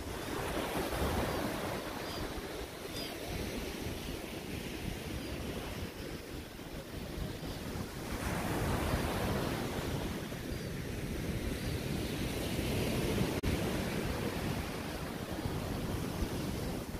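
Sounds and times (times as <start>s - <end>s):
small waves breaking on sand: 0.0s - 16.9s.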